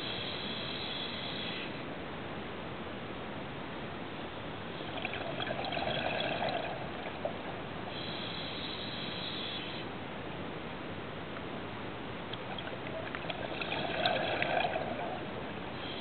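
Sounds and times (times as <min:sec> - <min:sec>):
steady hiss: 0:00.0 - 0:02.5, 0:03.4 - 0:16.0
regulator breathing underwater: 0:07.9 - 0:09.8, 0:13.3 - 0:16.0.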